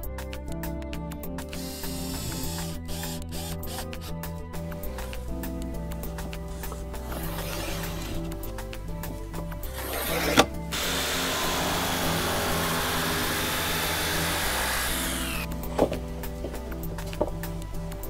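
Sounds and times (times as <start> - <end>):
background music: 0.0 - 18.0
jigsaw cutting plywood: 1.7 - 4.1, 7.1 - 8.3, 9.8 - 15.5.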